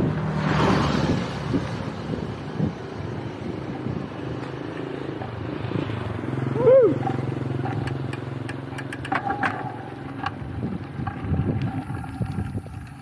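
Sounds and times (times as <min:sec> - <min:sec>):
small motorcycle engine passing: 0:00.0 - 0:13.0
wind buffeting microphone: 0:00.9 - 0:06.2, 0:10.2 - 0:13.0
sharp ticks and rattles: 0:07.1 - 0:13.0.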